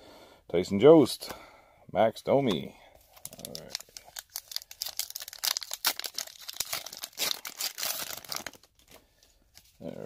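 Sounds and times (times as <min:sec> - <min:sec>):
plastic wrapper crinkling: 0:03.1 - 0:09.0.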